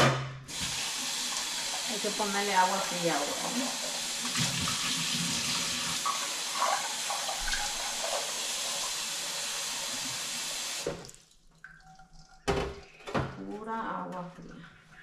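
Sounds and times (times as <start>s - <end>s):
faucet water splashing into metal pot: 0.5s - 12.5s.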